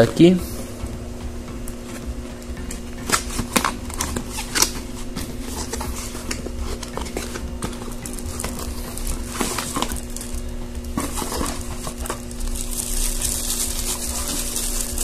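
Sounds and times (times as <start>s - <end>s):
plastic bag crinkling: 6.8s - 15.0s.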